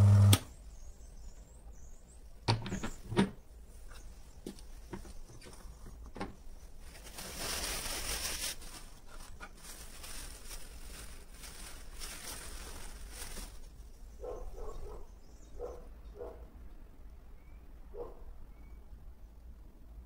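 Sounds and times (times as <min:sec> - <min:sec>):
rustling: 0:03.7 - 0:14.4.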